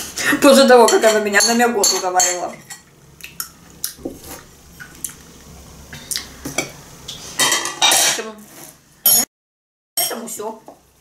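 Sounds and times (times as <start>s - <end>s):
clatter of dishes: 7.4s - 8.3s.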